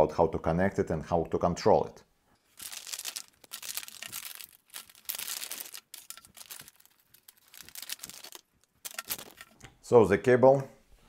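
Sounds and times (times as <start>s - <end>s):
plastic bag crinkling: 2.4s - 9.6s.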